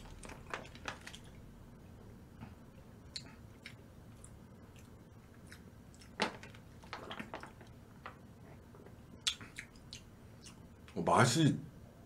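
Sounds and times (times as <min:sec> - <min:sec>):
wet chewing clicks: 0:03.1 - 0:06.3, 0:09.2 - 0:11.0.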